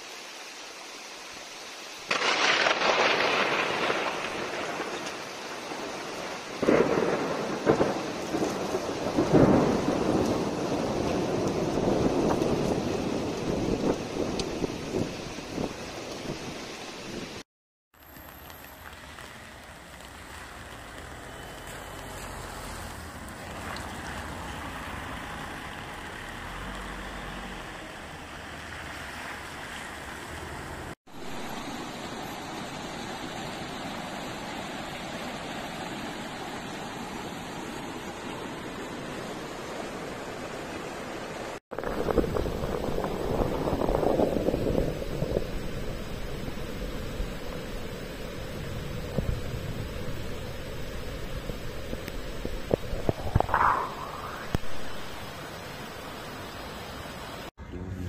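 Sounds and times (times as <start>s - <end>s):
floodwater rushing: 18.0s - 57.5s
wind buffeting microphone: 41.7s - 47.8s, 48.7s - 55.3s.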